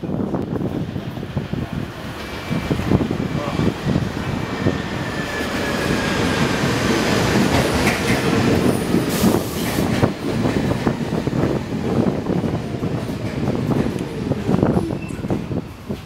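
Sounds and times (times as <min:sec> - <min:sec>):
subway train rumbling past: 0:00.0 - 0:16.0
wheels clacking over rail joints: 0:06.9 - 0:11.0.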